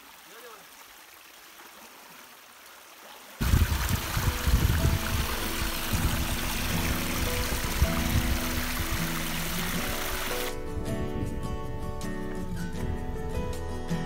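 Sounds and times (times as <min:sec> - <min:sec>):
stream rushing over rock: 0:00.0 - 0:10.6.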